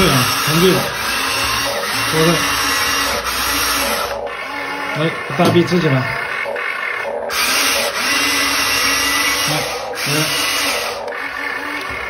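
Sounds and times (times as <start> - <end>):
toy excavator motors whirring: 0.0 - 12.0.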